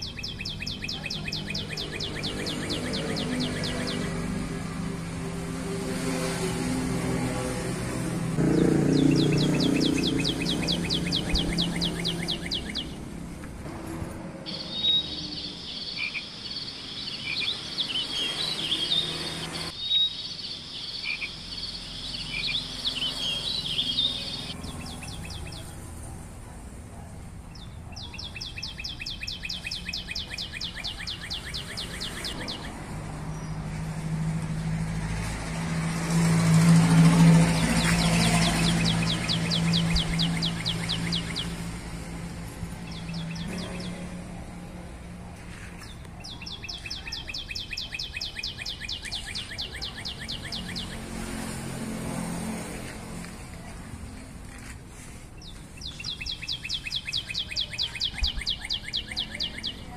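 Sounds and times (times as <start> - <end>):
bird chirps: 0.0 - 4.2, 8.5 - 13.1, 14.4 - 26.1, 27.5 - 33.7, 36.2 - 41.8, 42.5 - 44.4, 45.5 - 51.6, 55.4 - 59.9.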